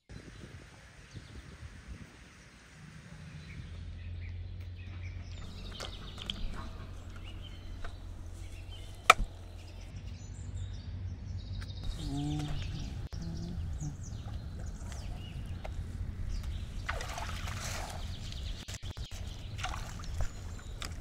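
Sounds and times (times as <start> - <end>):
small birds chirping: 3.3 - 21.0
steady low hum: 5.2 - 10.4, 11.8 - 21.0
short low call: 11.8 - 14.4.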